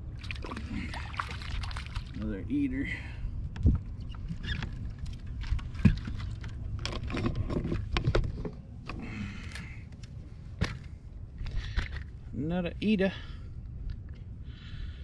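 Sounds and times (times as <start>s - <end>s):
low steady rumble: 0.0s - 15.0s
knocks and clicks of fishing gear: 5.4s - 8.5s, 10.6s - 10.9s.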